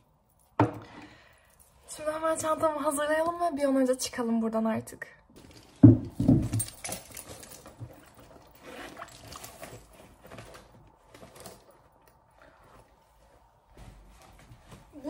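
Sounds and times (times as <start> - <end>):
rustling of handbag: 5.4 - 15.0
handbag thumps: 5.8 - 8.0.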